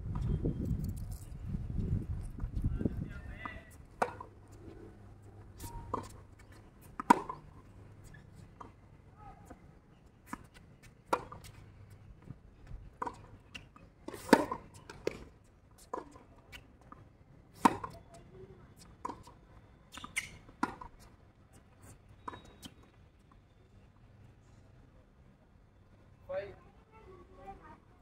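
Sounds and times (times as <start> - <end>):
tennis ball bouncing: 3.4 - 4.5, 5.7 - 8.7, 10.3 - 11.6, 14.0 - 15.2
tennis ball struck by racket: 4.0 - 4.3, 7.0 - 7.5, 14.1 - 15.2.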